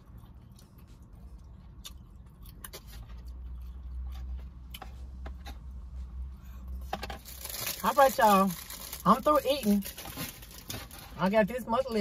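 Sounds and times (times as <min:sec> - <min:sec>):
chewing food: 0:00.0 - 0:05.4
steady low hum: 0:00.0 - 0:07.2.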